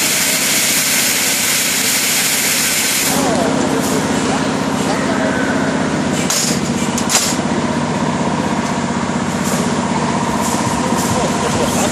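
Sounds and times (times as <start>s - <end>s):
machinery droning: 1.8s - 11.9s
thin high tone: 4.8s - 6.2s.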